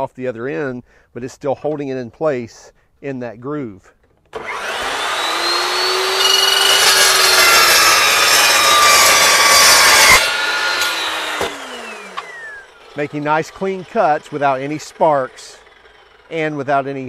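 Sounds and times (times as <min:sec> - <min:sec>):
saw motor whining: 0:04.3 - 0:17.0
saw blade rasping through steel: 0:04.4 - 0:17.0.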